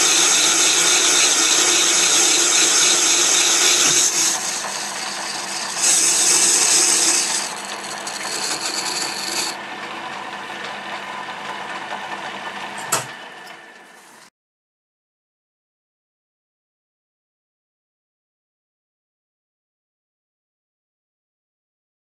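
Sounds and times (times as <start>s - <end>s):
lathe tool scraping cast iron: 0.0s - 9.6s
lathe running: 0.0s - 13.8s.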